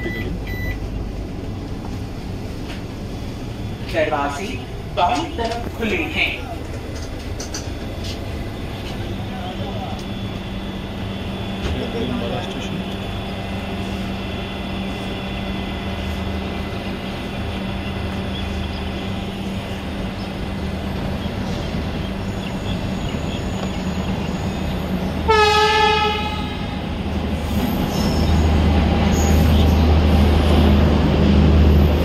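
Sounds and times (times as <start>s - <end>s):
train humming at platform: 0.0s - 32.0s
train horn blast: 25.2s - 27.0s.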